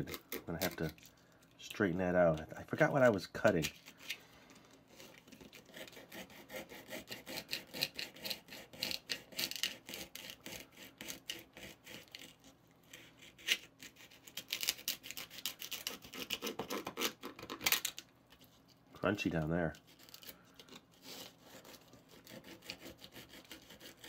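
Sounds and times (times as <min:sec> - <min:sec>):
knife sawing through crisp wafer: 0:04.9 - 0:17.2, 0:19.8 - 0:24.0.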